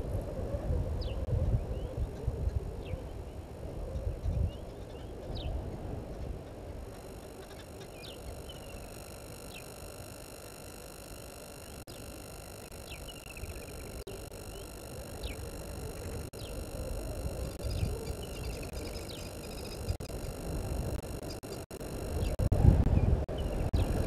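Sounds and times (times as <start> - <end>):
birds chirping: 1.0 - 24.0
thin electronic whine: 6.7 - 24.0.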